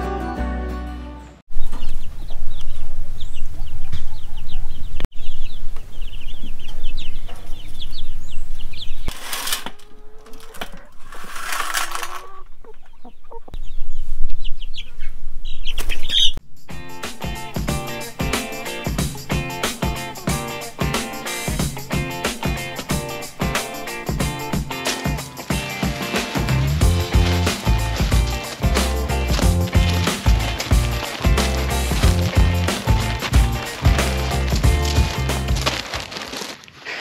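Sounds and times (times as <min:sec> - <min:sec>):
chickens clucking: 0:09.8 - 0:16.3
loud rustling flurries: 0:23.6 - 0:37.0.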